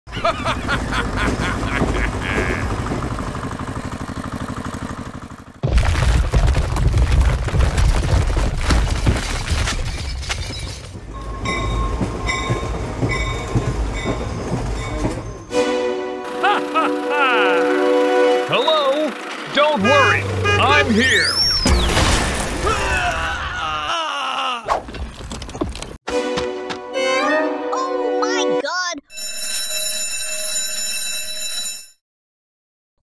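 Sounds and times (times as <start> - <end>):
rhythmic train-like pattern: 0.1 - 4.4, 11.1 - 21.2, 29.1 - 32.0
rumbling landslide with crackling: 5.6 - 11.1.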